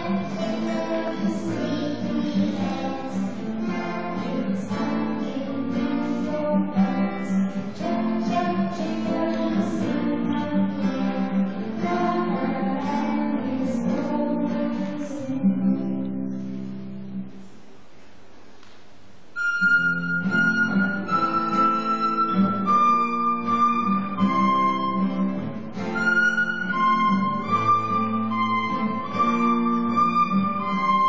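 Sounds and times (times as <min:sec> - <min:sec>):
girl singing: 0:00.0 - 0:16.0
plucked acoustic guitar: 0:00.0 - 0:17.7, 0:19.4 - 0:31.0.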